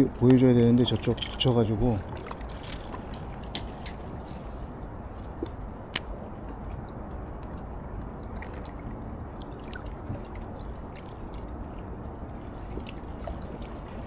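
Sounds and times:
river water lapping on rocks: 0.0 - 4.7, 7.5 - 14.0.

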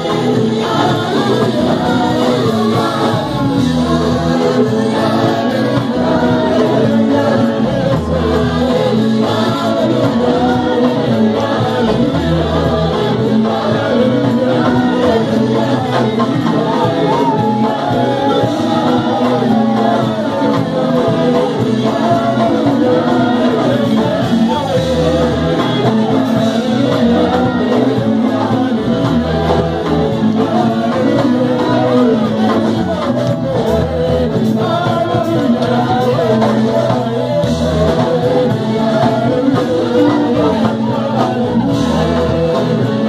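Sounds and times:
church band playing: 0.0 - 43.0
group singing gospel song: 0.0 - 43.0.

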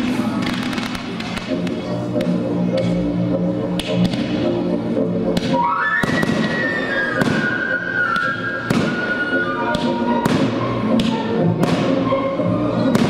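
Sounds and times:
loud music: 0.0 - 13.0
fireworks bangs: 0.2 - 1.7, 5.5 - 9.1.

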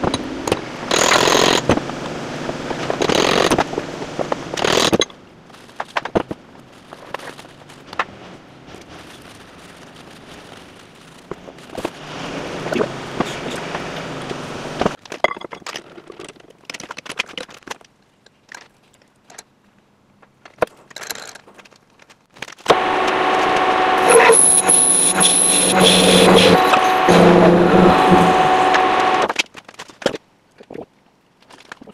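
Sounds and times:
handling metal parts: 4.6 - 8.0
metal lathe whining: 22.7 - 29.3.

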